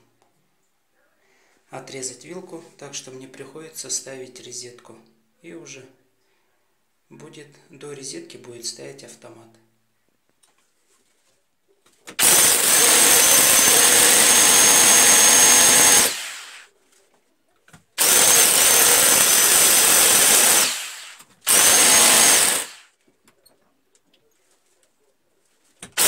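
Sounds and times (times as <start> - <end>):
electric drill boring into wall: 12.2 - 16.7, 18.0 - 22.9.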